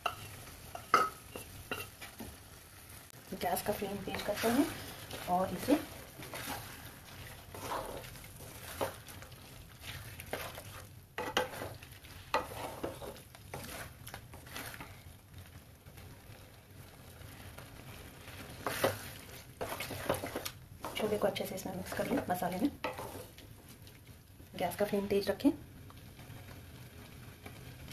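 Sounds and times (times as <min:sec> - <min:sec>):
spatula scraping and knocking pan: 0:00.0 - 0:02.4, 0:03.6 - 0:15.0, 0:18.3 - 0:23.8
frying hiss: 0:00.0 - 0:27.9.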